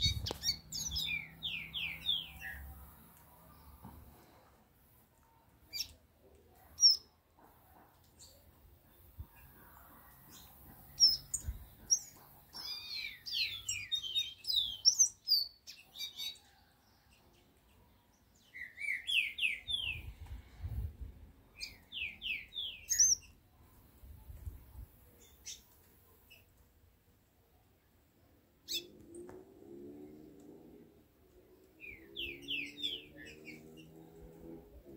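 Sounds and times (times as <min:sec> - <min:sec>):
songbird singing whistles: 0:18.5 - 0:20.1.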